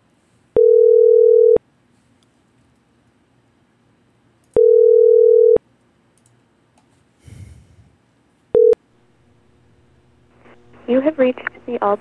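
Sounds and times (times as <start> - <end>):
telephone ringback tone: 0.6 - 1.6, 4.6 - 5.6, 8.6 - 8.8.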